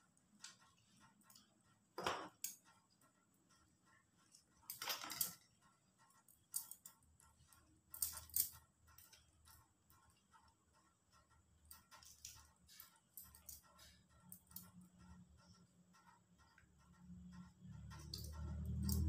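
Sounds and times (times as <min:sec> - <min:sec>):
metal bangles clinking: 0:04.7 - 0:05.4, 0:07.9 - 0:09.2, 0:11.7 - 0:14.8, 0:17.8 - 0:19.0.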